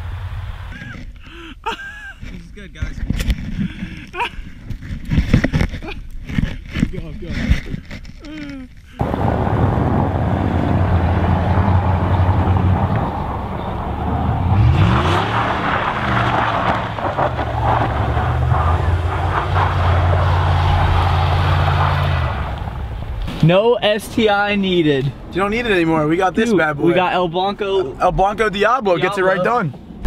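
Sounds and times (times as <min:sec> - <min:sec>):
truck engine revving: 0:09.0 - 0:23.2
steady rushing noise: 0:09.0 - 0:27.6.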